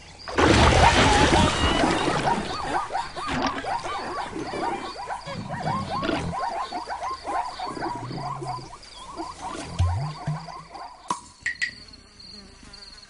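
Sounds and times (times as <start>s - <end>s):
faint insect-like chirping: 2.6s - 13.0s.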